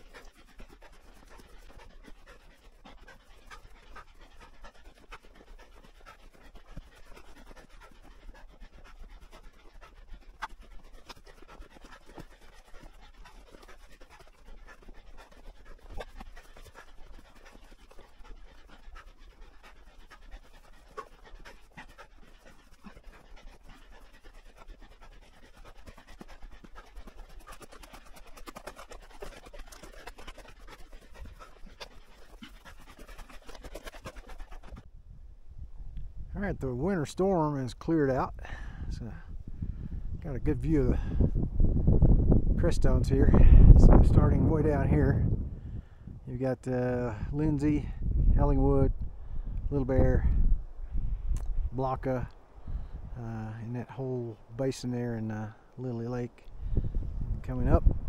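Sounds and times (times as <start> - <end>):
hard panting: 0.0 - 34.9, 36.9 - 42.0.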